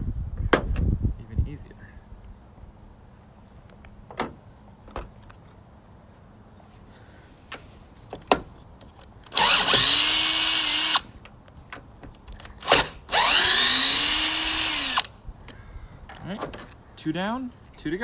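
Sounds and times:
power drill spinning: 9.3 - 11.1, 12.5 - 15.1.

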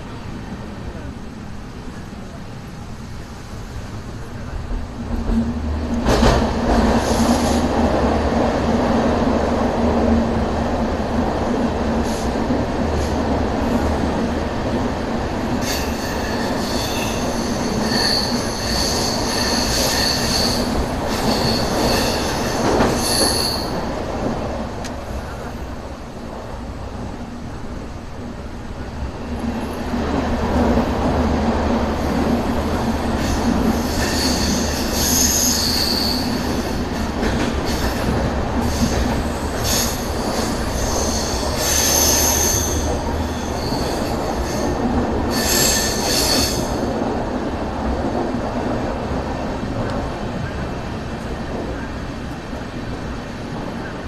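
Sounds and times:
train rumble in tunnel: 0.0 - 54.0
metallic wheel squeal: 15.6 - 23.7, 33.4 - 36.4.

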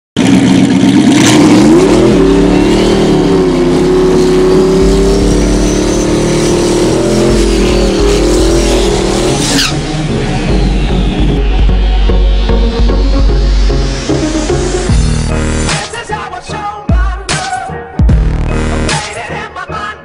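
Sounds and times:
race car engine revving: 0.2 - 15.9.

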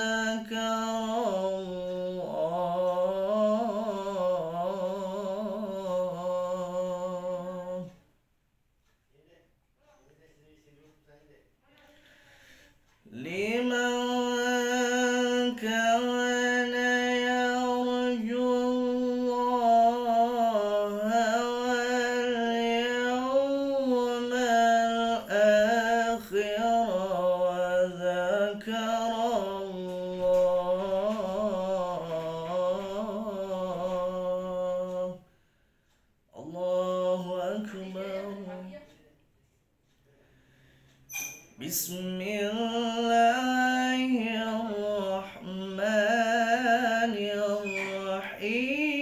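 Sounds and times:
man reciting melodically: 0.0 - 8.1, 8.8 - 35.6, 36.2 - 39.3, 41.6 - 49.0
breaths between phrases: 11.8 - 13.0, 40.0 - 41.1.

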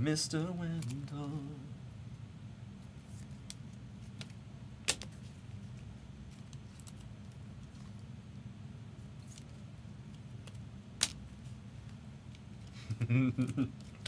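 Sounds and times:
faint low hum: 0.0 - 14.0
cards and plastic sleeves handled: 2.8 - 8.1, 9.0 - 12.8.

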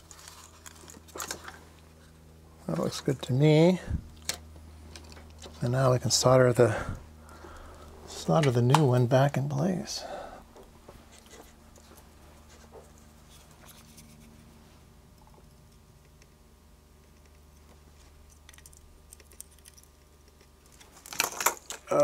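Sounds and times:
steady low hum: 0.0 - 22.0.

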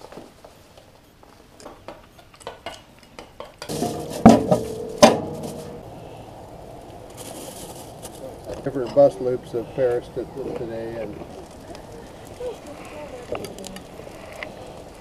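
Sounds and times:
metallic clanks on grill: 3.6 - 5.9
aluminium foil crinkling: 6.8 - 9.1, 9.9 - 15.0.

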